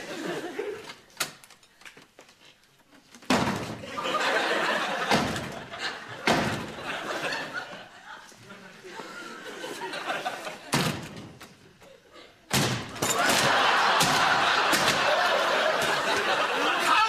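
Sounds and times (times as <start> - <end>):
studio audience laughter: 0.0 - 0.9, 3.8 - 10.8, 13.1 - 17.0
door crashing: 3.2 - 4.1, 4.9 - 7.1, 10.7 - 11.4, 12.5 - 16.4
wooden door slamming: 3.3 - 3.9, 5.0 - 6.9, 10.7 - 11.4, 12.5 - 15.1.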